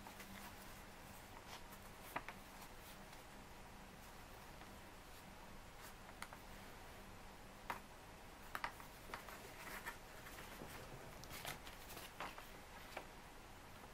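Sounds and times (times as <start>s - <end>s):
low steady hum: 0.0s - 13.9s
paper crinkling and rustling: 8.7s - 13.1s.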